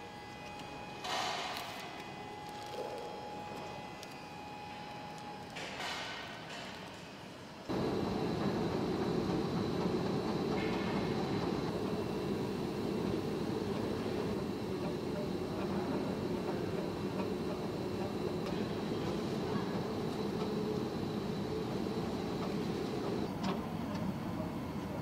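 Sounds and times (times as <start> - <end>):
three d printer humming: 7.7 - 23.6.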